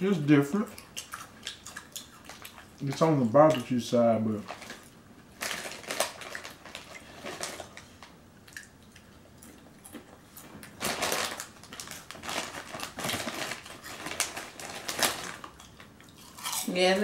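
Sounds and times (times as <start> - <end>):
plastic chip bag crinkling: 4.3 - 8.2, 10.6 - 16.8
chips crunching when chewed: 8.5 - 16.7.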